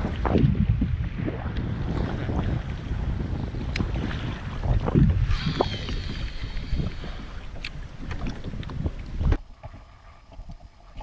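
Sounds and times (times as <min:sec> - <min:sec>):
water slapping kayak hull: 0:00.0 - 0:11.0
wind buffeting microphone: 0:00.0 - 0:11.0.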